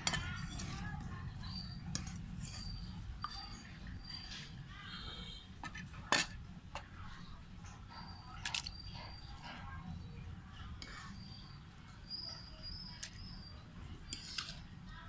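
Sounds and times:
cleaver clinking against metal pot: 0:00.0 - 0:04.3.

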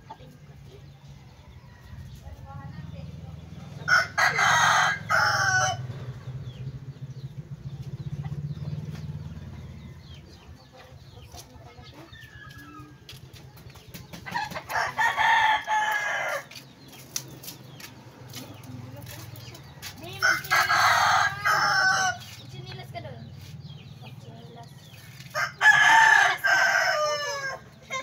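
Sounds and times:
rooster crowing: 0:03.9 - 0:06.0, 0:14.7 - 0:16.6, 0:20.2 - 0:22.2, 0:25.3 - 0:27.7.

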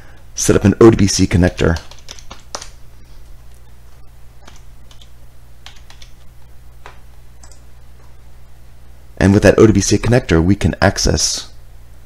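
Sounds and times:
steady low hum: 0:00.0 - 0:12.0
keyboard keystrokes clicking: 0:01.7 - 0:02.8, 0:04.4 - 0:06.2, 0:06.8 - 0:07.7.

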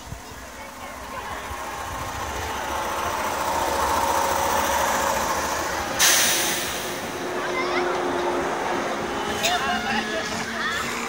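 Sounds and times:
electric train motors humming: 0:00.0 - 0:11.0
loud hiss: 0:02.8 - 0:07.2.

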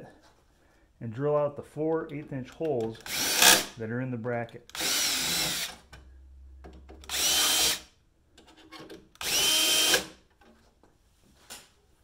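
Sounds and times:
cordless drill whining: 0:03.0 - 0:03.6, 0:04.8 - 0:05.8, 0:07.1 - 0:07.8, 0:09.2 - 0:10.1.

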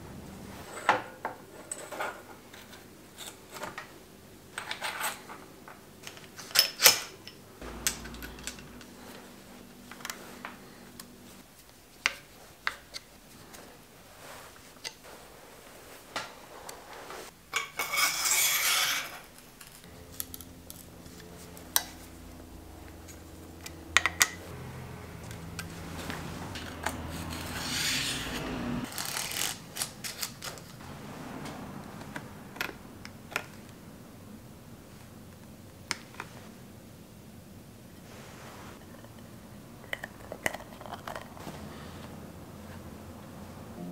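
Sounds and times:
metal tools clinking on bike parts: 0:06.2 - 0:09.2
noisy metal rubbing: 0:18.2 - 0:31.2.

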